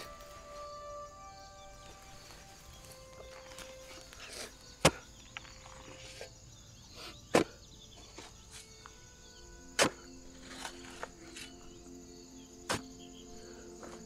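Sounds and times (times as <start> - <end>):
digging tool striking ground: 2.8 - 6.3, 7.2 - 7.6, 9.7 - 11.6, 12.6 - 13.1.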